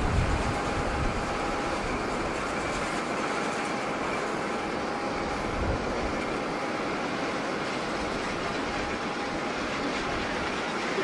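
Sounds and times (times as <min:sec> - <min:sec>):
wind buffeting microphone: 0:00.0 - 0:03.3, 0:05.2 - 0:06.4
jet engines roaring: 0:00.0 - 0:11.0.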